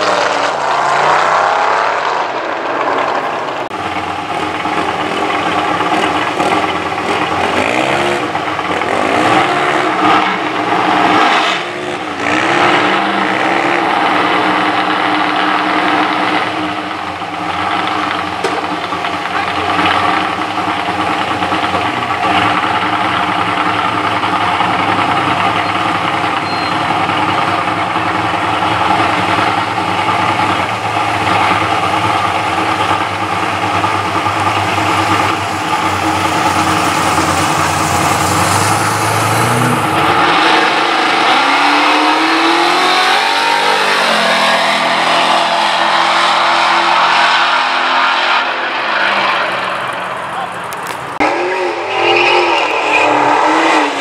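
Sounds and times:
drag car engine accelerating: 0.0s - 54.0s.

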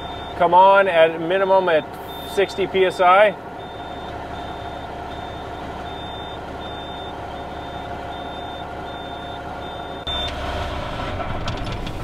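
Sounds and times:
truck engine idling: 0.0s - 12.0s
warning buzzer beeping: 1.4s - 2.7s, 3.3s - 10.4s.

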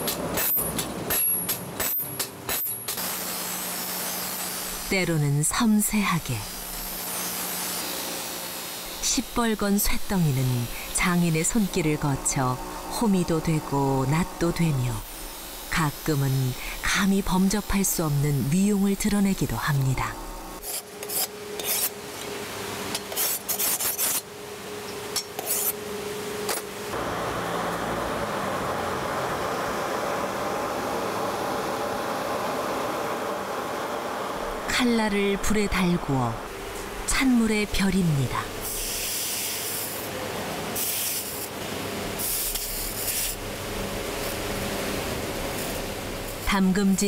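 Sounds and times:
hot steel sizzling in water: 1.9s - 19.7s, 20.3s - 22.0s, 23.0s - 24.3s, 38.6s - 46.6s
file rasping on steel blade: 20.6s - 21.9s.

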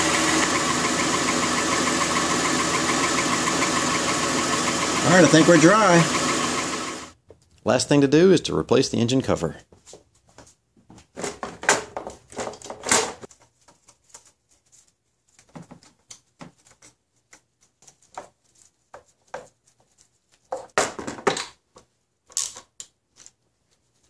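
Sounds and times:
plastic cover clattering: 11.1s - 14.2s.

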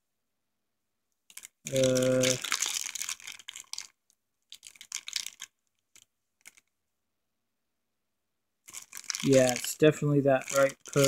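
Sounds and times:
plastic bag crinkling: 1.3s - 6.7s, 8.6s - 11.0s.

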